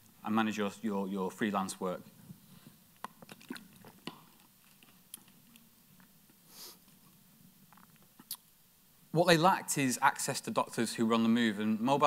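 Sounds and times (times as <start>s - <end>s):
person gulping: 3.0s - 5.6s
short hiss: 6.5s - 6.9s.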